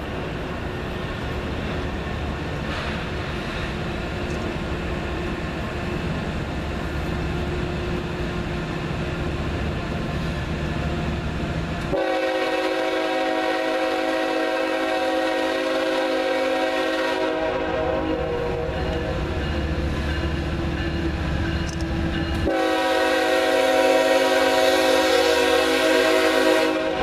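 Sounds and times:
low rumble of approaching train: 0.0 - 27.0
locomotive air horn blast: 11.9 - 19.2, 22.4 - 27.0.

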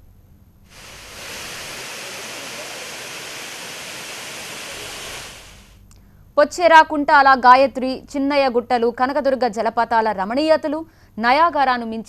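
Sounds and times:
waterfall rushing over rock: 0.7 - 5.8.

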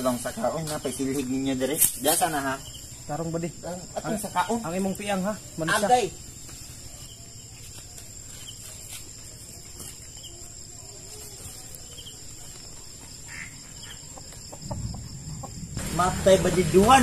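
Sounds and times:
insects droning: 0.0 - 17.0
rustling: 6.2 - 13.3.

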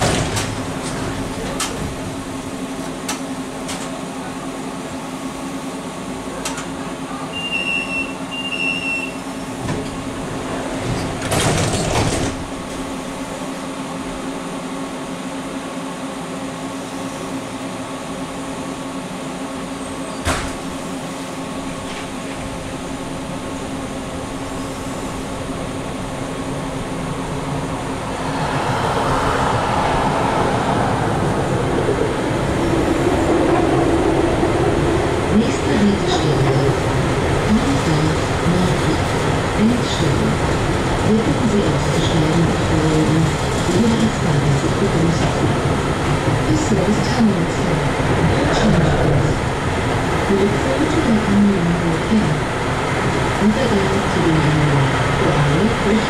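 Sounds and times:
tram electrical hum: 0.0 - 56.0
tram running noise: 0.0 - 56.0
brief rush of noise: 28.0 - 32.7.

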